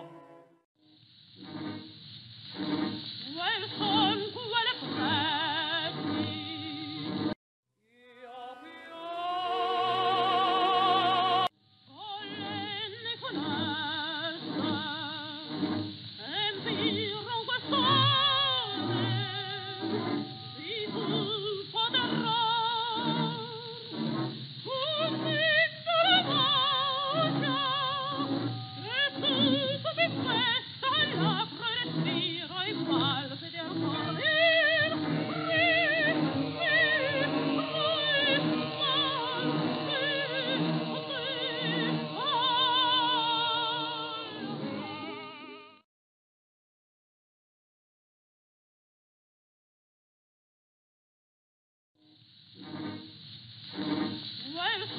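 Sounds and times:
held accompanying tones: 0.0s - 0.7s, 1.4s - 45.7s
soprano singing with vibrato: 3.3s - 7.1s, 7.9s - 15.5s, 16.2s - 24.0s, 24.7s - 45.8s, 54.5s - 54.9s.

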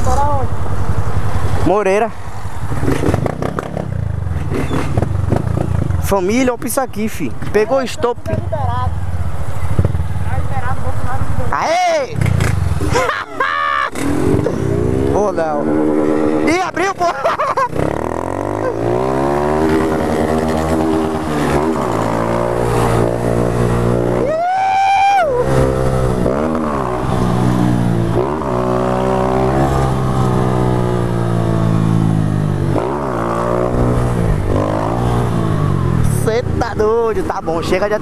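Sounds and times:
small motorcycle engine revving: 2.7s - 6.0s, 13.6s - 24.4s, 25.2s - 36.4s.

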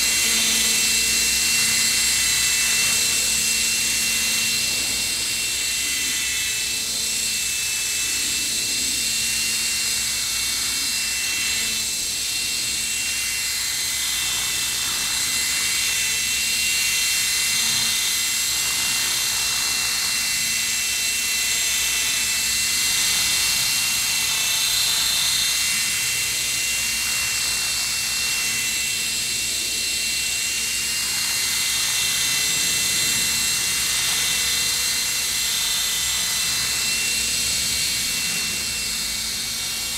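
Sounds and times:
rc helicopter motor whine: 0.0s - 39.9s
rotor hum: 0.0s - 39.9s.

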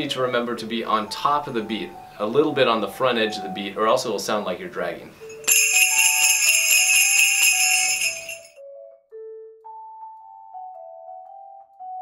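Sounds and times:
sleigh bells jingling: 5.2s - 8.6s
mallet melody: 5.3s - 8.6s.

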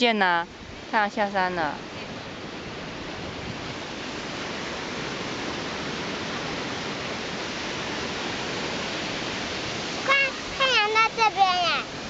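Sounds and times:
surf washing onto sandy beach: 0.0s - 12.0s.

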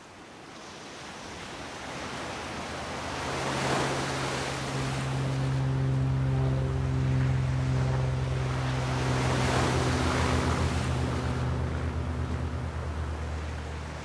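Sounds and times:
sea waves washing in: 0.0s - 14.0s
low steady held tone: 4.5s - 14.0s.

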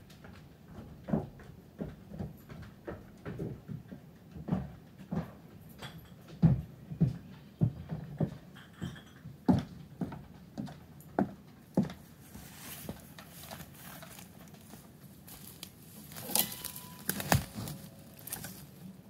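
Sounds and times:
footsteps approaching: 9.5s - 19.0s
dry twigs crackling: 13.4s - 19.0s.

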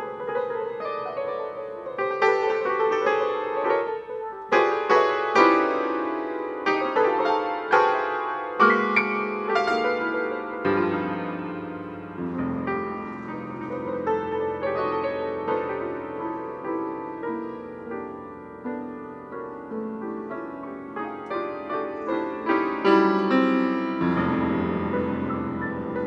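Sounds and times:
solo piano playing: 0.0s - 26.0s.

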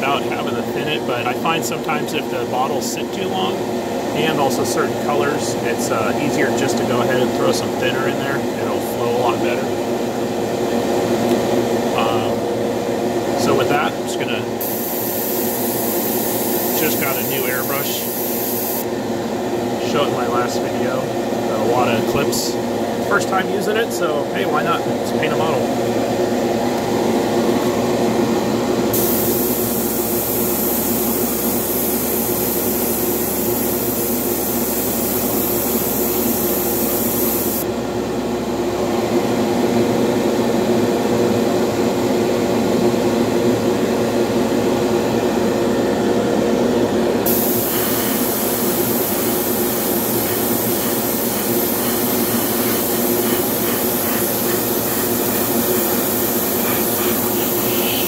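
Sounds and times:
exhaust fan running: 0.0s - 58.0s
airbrush hissing: 14.6s - 18.9s, 28.9s - 37.6s, 47.3s - 58.0s.

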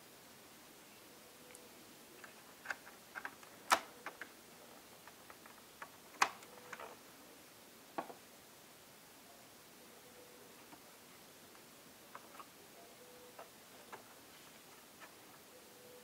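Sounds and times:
plastic laptop parts clicking: 2.2s - 4.3s.

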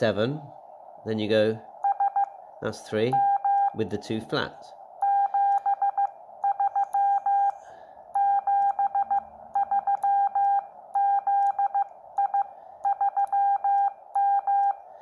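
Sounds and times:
morse code beeps: 1.8s - 2.4s, 3.2s - 3.8s, 5.0s - 14.8s.

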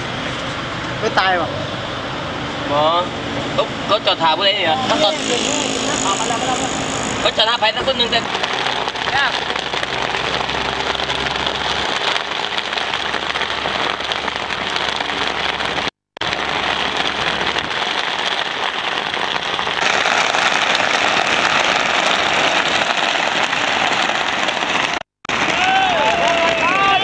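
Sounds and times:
wind and road noise in vehicle: 0.0s - 19.8s.

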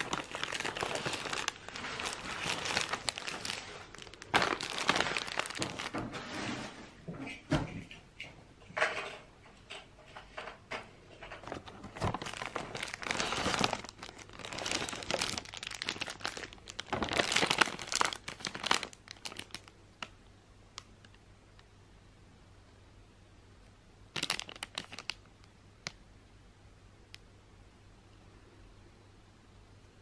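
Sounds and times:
cellophane crinkling: 0.0s - 6.6s, 11.2s - 20.2s, 24.1s - 26.0s.

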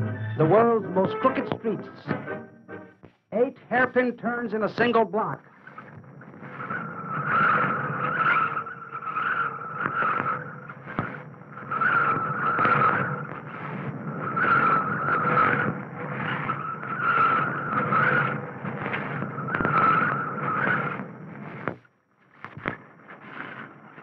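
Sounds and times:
car tyres squealing: 5.4s - 21.8s.

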